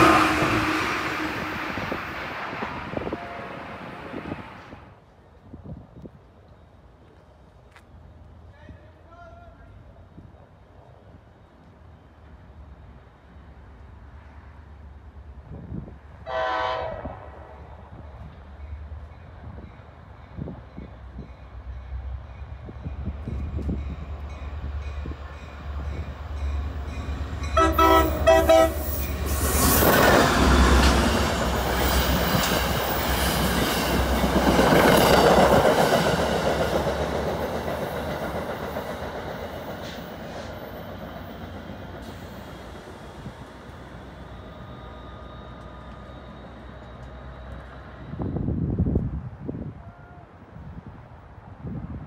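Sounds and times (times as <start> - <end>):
train horn blasts: 0.0 - 1.9, 2.9 - 4.2, 16.2 - 17.7, 27.4 - 29.0
train wheels rushing on rails: 0.0 - 9.5, 15.3 - 49.2.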